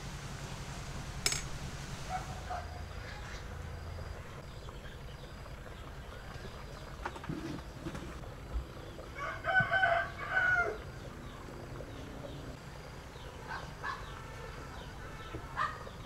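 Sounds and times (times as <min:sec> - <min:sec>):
steady low hum: 0:00.0 - 0:09.5
sharp click: 0:01.2 - 0:01.5
faint chicken calls: 0:09.1 - 0:11.4.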